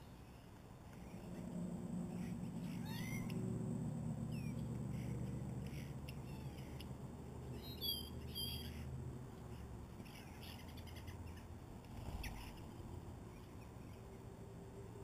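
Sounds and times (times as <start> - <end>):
low steady hum: 0.0 - 15.0
short curving bird calls: 1.0 - 3.4.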